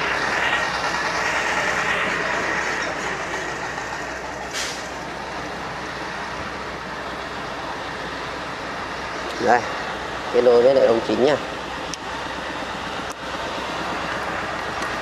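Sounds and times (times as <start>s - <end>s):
machine engine running: 0.0s - 6.6s
short hiss: 4.5s - 4.9s.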